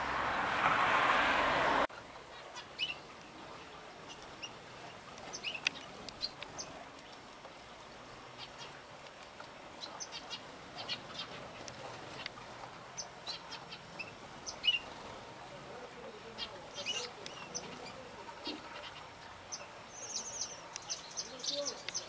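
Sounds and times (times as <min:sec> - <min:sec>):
finches chirping: 0:02.3 - 0:07.2, 0:09.6 - 0:15.5, 0:16.1 - 0:22.0.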